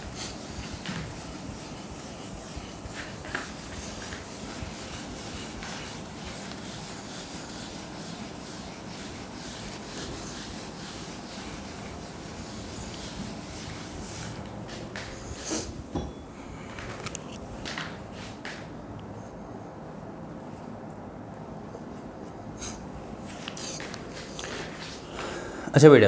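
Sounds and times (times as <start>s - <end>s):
scratching strokes writing on board: 0.0s - 15.7s
room hiss: 0.0s - 20.7s.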